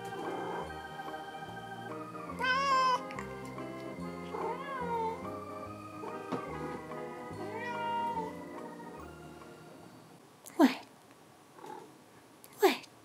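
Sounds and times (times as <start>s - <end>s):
background music with low notes: 0.0s - 10.2s
cat meowing: 2.4s - 3.1s, 4.3s - 5.2s, 7.4s - 8.4s.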